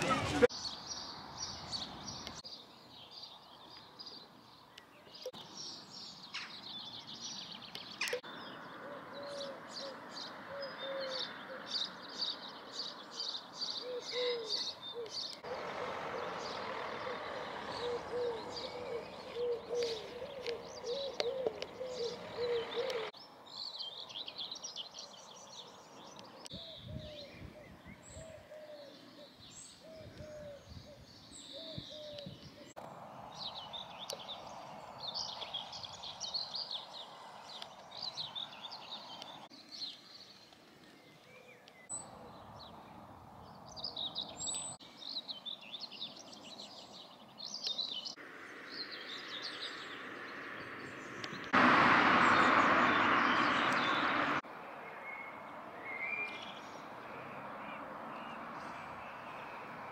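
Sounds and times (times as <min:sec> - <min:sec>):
birds singing and chirping: 0:00.0 - 0:59.9
lower repeated bird call: 0:13.2 - 0:23.2.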